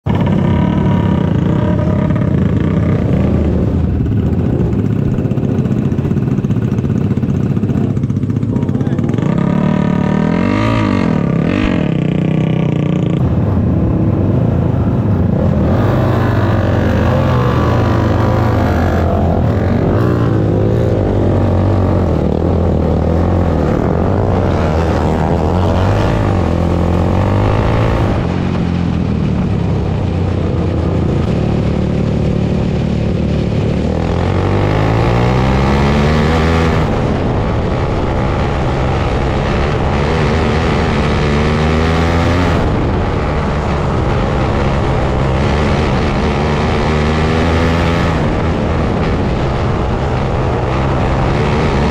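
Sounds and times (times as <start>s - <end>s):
kart engine revving hard: 0.1s - 13.2s, 15.5s - 28.3s, 32.2s - 37.3s.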